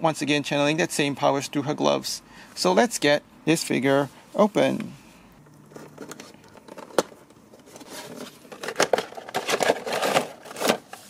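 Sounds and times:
cardboard and plastic rustling: 0:05.7 - 0:11.0.

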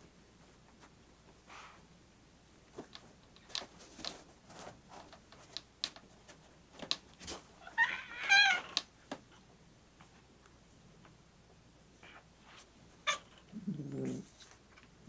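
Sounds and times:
cat meowing: 0:07.6 - 0:08.8.

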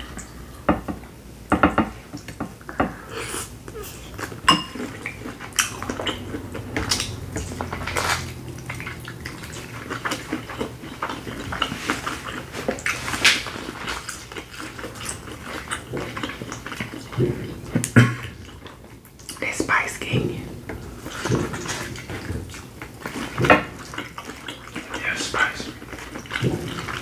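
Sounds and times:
chewing and smacking: 0:03.7 - 0:19.6, 0:20.2 - 0:27.0.

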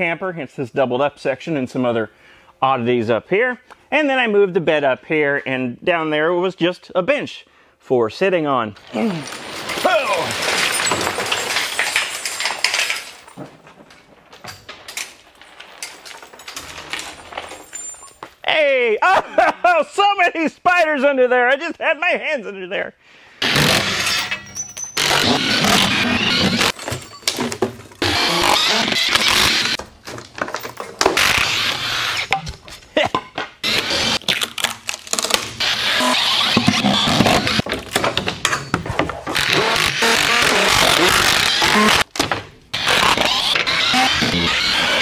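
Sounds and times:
metal frame and wood clattering: 0:08.8 - 0:18.4, 0:23.4 - 0:34.2, 0:35.3 - 0:45.0
clicks and clatter: 0:09.2 - 0:18.3.

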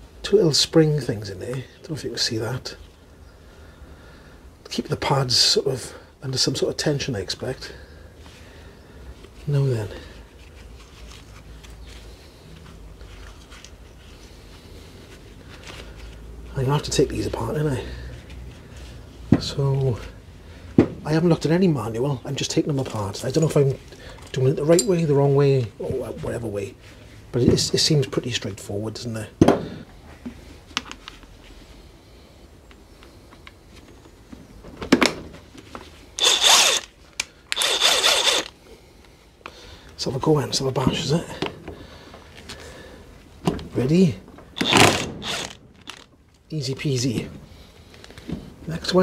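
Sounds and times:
impact wrench spinning whine: 0:36.2 - 0:36.9, 0:37.6 - 0:38.5, 0:44.6 - 0:46.1.

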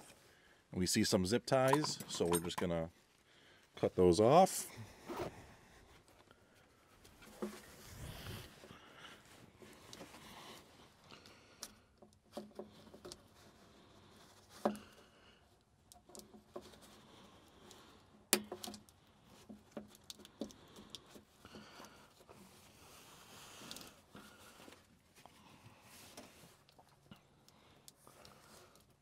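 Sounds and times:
wiring clicks and rattles: 0:14.4 - 0:22.2.

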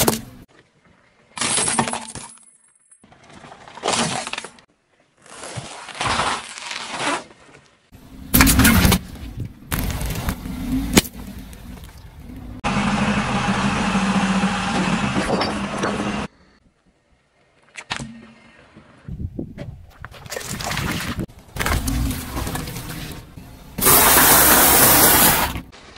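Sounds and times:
car tyre crushing objects: 0:05.2 - 0:12.6, 0:21.3 - 0:25.9
car engine running: 0:08.0 - 0:16.3.

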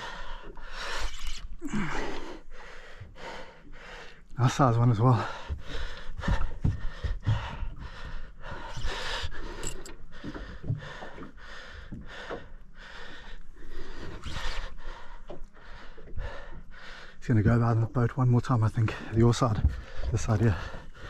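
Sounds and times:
man breathing hard: 0:05.2 - 0:14.2.

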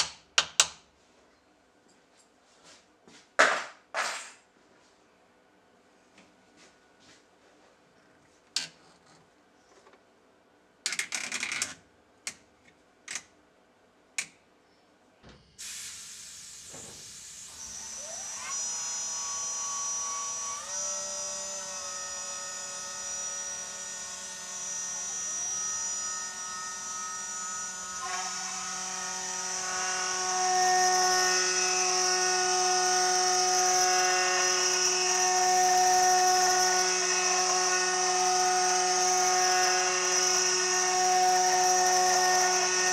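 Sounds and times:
endmill cutting aluminium: 0:17.2 - 0:42.9.

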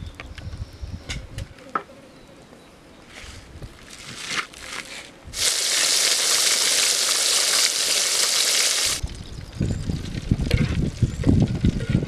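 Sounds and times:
crumb coating crunching rustle: 0:03.0 - 0:05.5
chicken deep-frying sizzle: 0:05.4 - 0:09.0.

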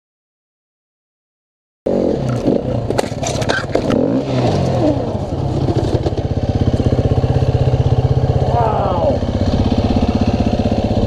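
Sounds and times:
sharp knocks and clatter: 0:02.2 - 0:04.7
dirt bike engine idling: 0:02.3 - 0:11.0.

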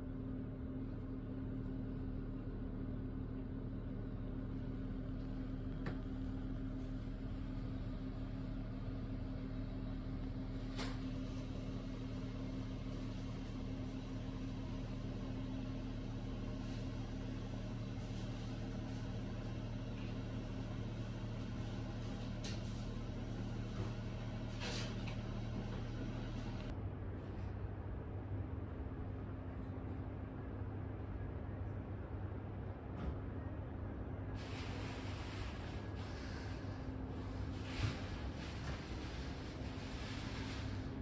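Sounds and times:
low mechanical hum: 0:00.0 - 0:41.0.

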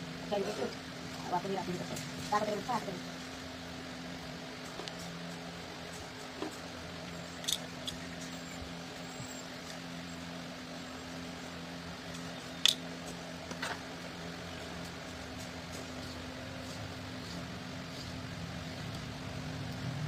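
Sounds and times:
steady low hum: 0:00.0 - 0:20.0
clicks and rustles of wires: 0:04.5 - 0:08.4, 0:12.0 - 0:19.9.

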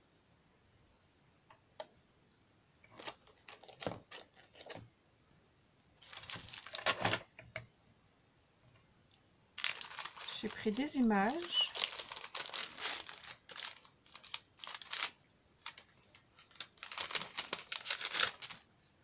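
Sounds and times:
plastic packaging rustling: 0:02.9 - 0:04.8, 0:06.0 - 0:07.3, 0:09.6 - 0:18.7.

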